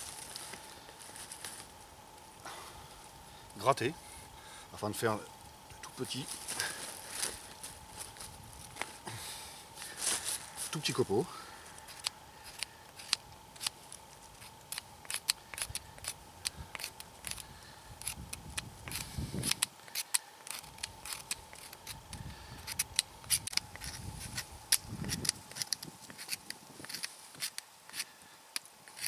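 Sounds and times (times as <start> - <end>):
knife scraping wood: 11.8 - 17.4, 18.8 - 22.0, 22.6 - 28.1.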